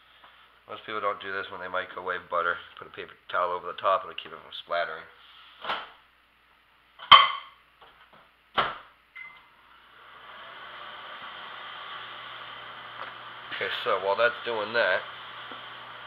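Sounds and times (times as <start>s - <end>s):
microwave beep: 9.1s - 9.6s
microwave running whir: 9.2s - 16.0s.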